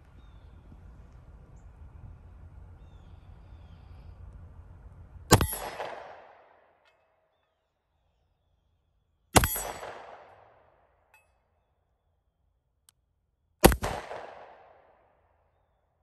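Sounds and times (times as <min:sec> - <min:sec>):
low rumble: 0:00.0 - 0:06.4
pistol shot: 0:05.3 - 0:06.6, 0:09.4 - 0:10.6, 0:13.6 - 0:14.9.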